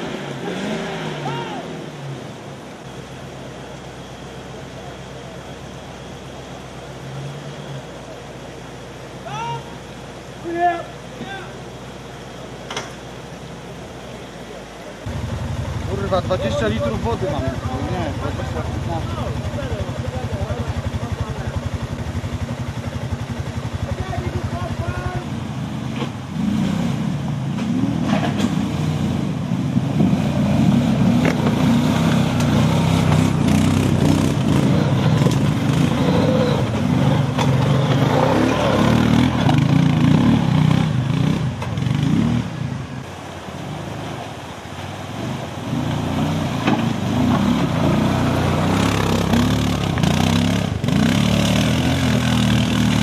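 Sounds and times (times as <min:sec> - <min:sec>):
off-road engine revving: 0:00.0 - 0:03.0, 0:15.0 - 0:53.0.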